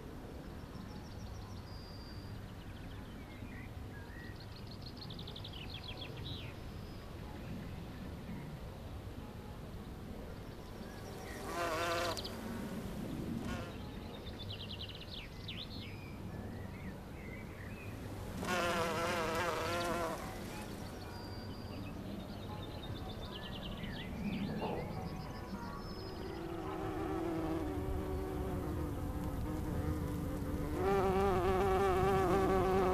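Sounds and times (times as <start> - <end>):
bumblebee buzzing past: 11.2 - 13.9, 18.3 - 20.8, 26.2 - 32.9.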